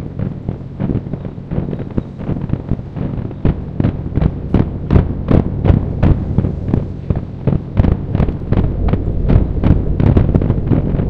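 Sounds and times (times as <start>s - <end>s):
distant firework booms: 3.4s - 11.0s.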